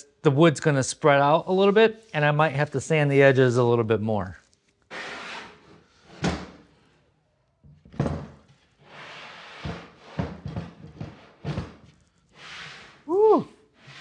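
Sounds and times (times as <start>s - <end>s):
wood sliding scrapes: 4.9s - 6.2s, 8.8s - 13.1s, 13.7s - 14.0s.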